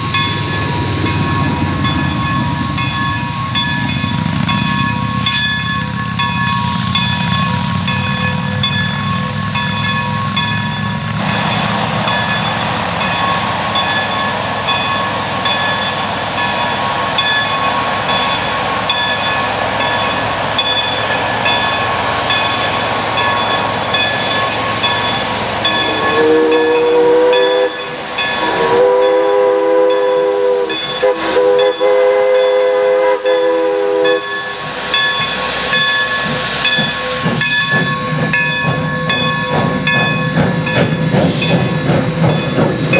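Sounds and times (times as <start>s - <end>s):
crossing signal bell ringing: 0.0s - 42.9s
steam locomotive hissing steam: 0.0s - 42.9s
train chime whistle: 21.6s - 39.4s.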